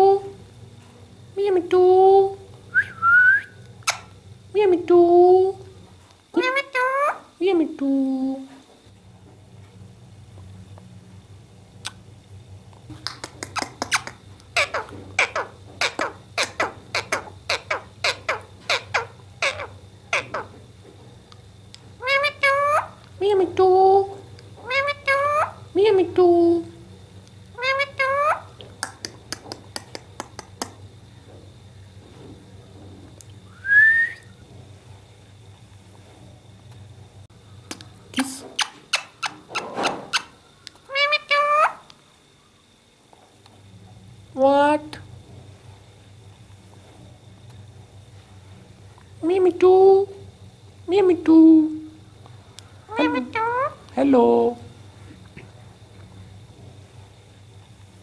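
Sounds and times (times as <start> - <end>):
parakeet squawking: 6.4 - 7.3, 13.6 - 20.5, 22.0 - 23.0, 24.6 - 25.6, 27.6 - 28.5, 40.9 - 41.8, 52.9 - 53.8
sharp clicks and smacks: 12.9 - 14.5, 28.6 - 30.8, 37.7 - 40.8.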